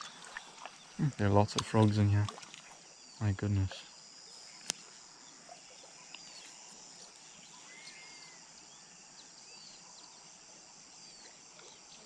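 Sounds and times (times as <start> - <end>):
high insect drone: 0.0 - 12.0
short chirping calls: 7.5 - 8.4.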